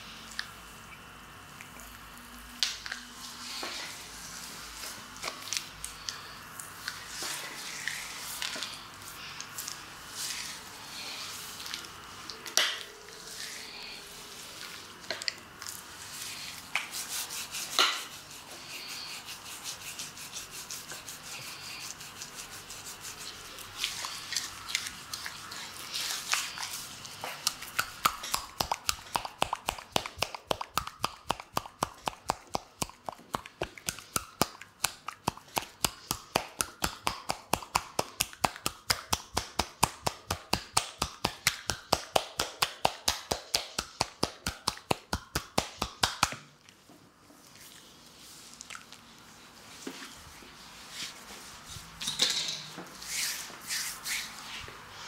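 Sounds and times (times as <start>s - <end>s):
hands squishing foam on skin: 15.6s - 46.3s
quick tapping on foamy skin: 27.4s - 46.4s
slaps on skin: 33.9s - 46.4s.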